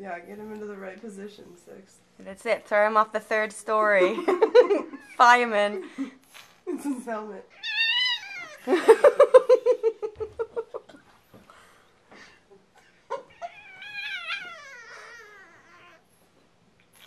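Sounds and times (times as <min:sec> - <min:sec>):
puppy whimpering and whining: 0:07.6 - 0:08.7, 0:13.3 - 0:16.1.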